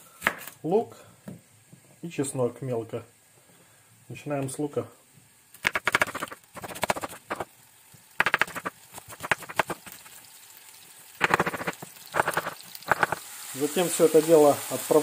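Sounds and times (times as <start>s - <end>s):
knife chopping onion on wood: 5.6s - 7.5s, 8.2s - 10.1s, 11.2s - 13.2s.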